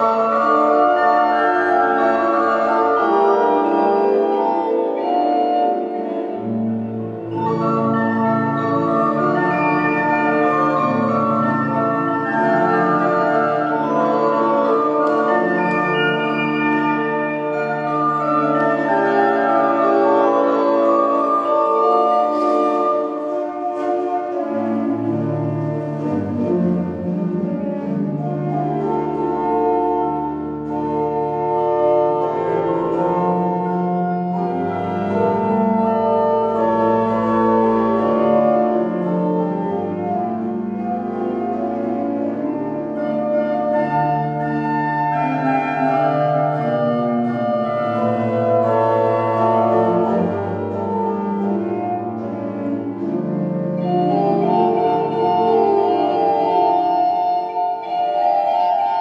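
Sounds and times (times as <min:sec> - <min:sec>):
pipe organ playing sustained chords: 0:00.0 - 0:59.0.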